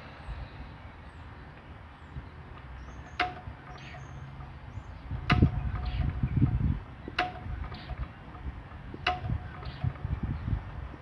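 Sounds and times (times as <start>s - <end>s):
low steady engine rumble: 0.0s - 11.0s
small birds chirping faintly: 0.0s - 11.0s
sharp metal clicks: 2.5s - 10.2s
loud knocking: 3.1s - 4.6s, 5.2s - 10.0s.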